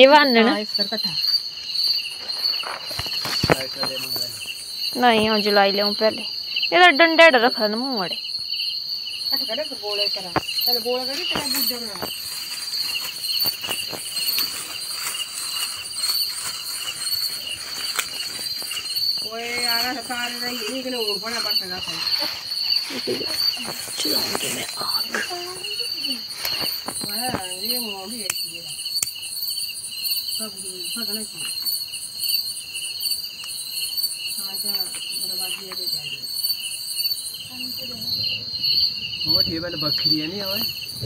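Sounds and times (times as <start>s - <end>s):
crickets chirping: 0.0s - 41.0s
footsteps in grass: 1.6s - 5.1s, 10.4s - 28.0s.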